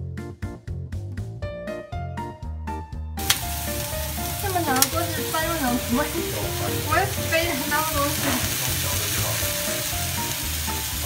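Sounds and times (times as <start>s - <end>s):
background music: 0.0s - 11.0s
food sizzling in hot oil: 3.2s - 11.0s.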